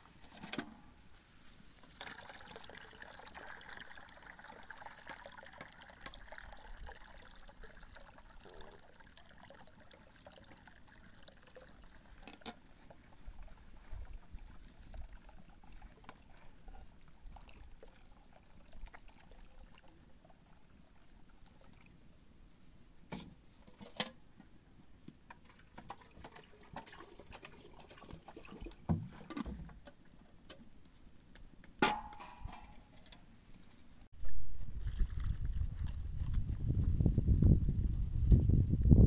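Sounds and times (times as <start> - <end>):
water trickling into cup: 2.0 - 22.0, 34.8 - 36.3.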